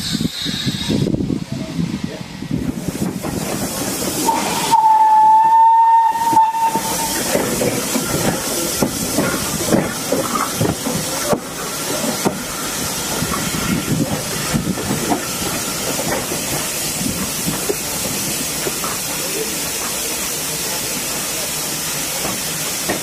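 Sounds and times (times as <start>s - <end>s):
steam hissing: 0.0s - 23.0s
wheels clattering over rail joints: 7.2s - 18.0s.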